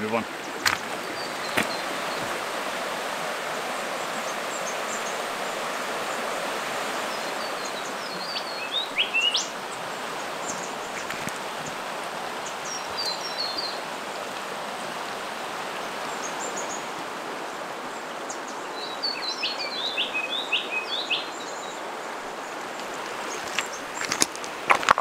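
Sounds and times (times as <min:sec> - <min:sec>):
birds chirping: 0:00.0 - 0:02.8, 0:07.1 - 0:13.9, 0:15.9 - 0:25.0
river water rushing over rocks: 0:00.0 - 0:25.0.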